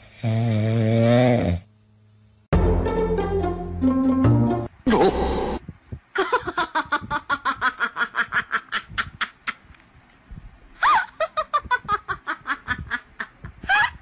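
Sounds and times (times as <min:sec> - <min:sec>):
person giggling: 0:06.2 - 0:09.7, 0:10.8 - 0:14.0.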